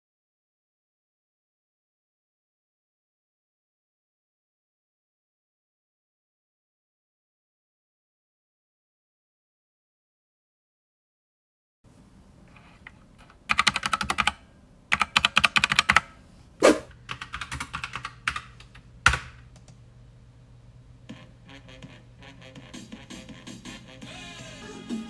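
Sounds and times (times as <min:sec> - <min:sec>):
computer keyboard typing: 0:13.5 - 0:16.1, 0:17.1 - 0:19.8.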